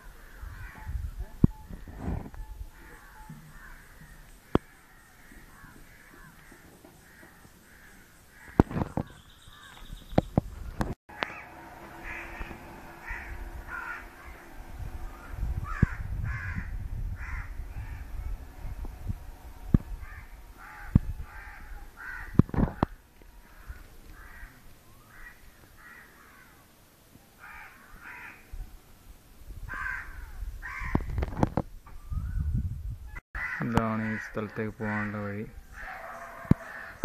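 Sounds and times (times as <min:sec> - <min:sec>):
crows cawing: 0:02.7 - 0:09.9, 0:11.1 - 0:18.1, 0:20.0 - 0:26.6, 0:27.4 - 0:28.5, 0:29.7 - 0:31.1, 0:33.4 - 0:37.0
low rumble: 0:10.4 - 0:22.0.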